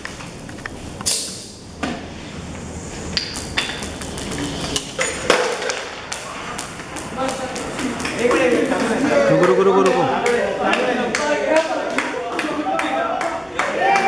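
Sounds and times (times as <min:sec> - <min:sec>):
objects knocking and clattering: 0:03.2 - 0:08.3.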